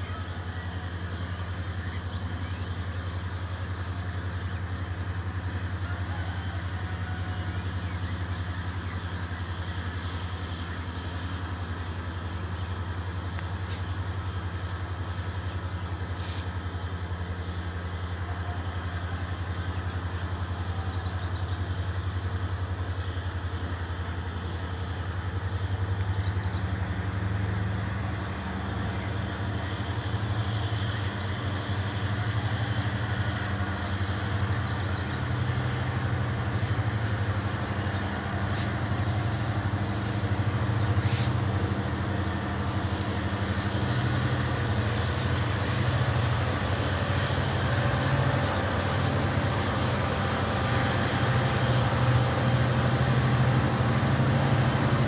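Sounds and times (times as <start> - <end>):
insects trilling: 0.0 - 55.0
locomotive engine drone: 0.0 - 55.0.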